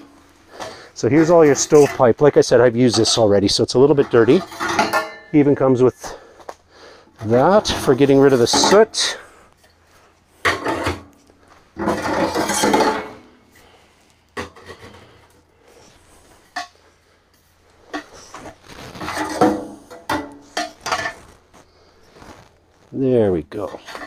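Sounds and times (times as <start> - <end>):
metal pipe scraping: 0.0 - 6.2, 7.1 - 13.8, 17.8 - 22.5.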